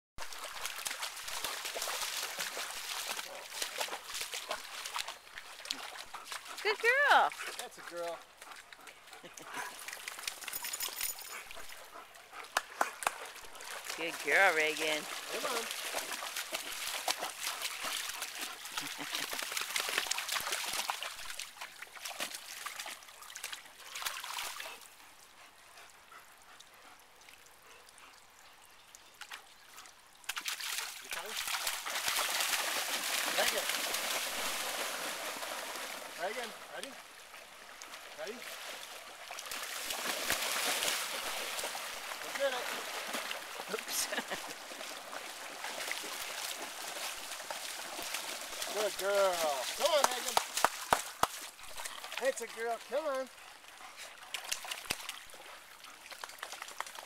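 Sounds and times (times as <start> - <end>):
dog splashing while swimming: 0.2 - 8.1, 9.5 - 24.8, 30.3 - 36.3, 37.9 - 52.2
water trickling in a creek: 0.2 - 57.0.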